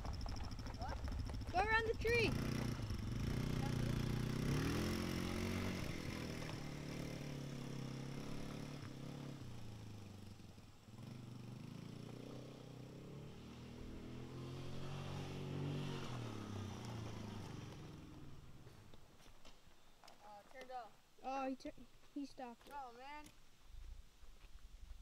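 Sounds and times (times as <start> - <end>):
atv engine revving: 0.0 - 18.7.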